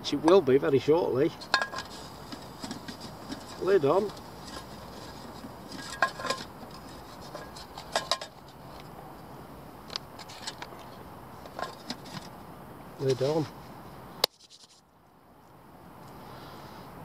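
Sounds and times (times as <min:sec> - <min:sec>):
metal pot lid clinking: 0:01.4 - 0:08.4.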